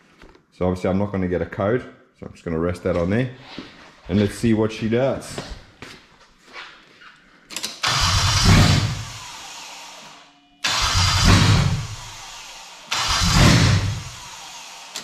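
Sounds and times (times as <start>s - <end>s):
engine cranking on starter: 7.7s - 9.4s, 10.6s - 15.0s.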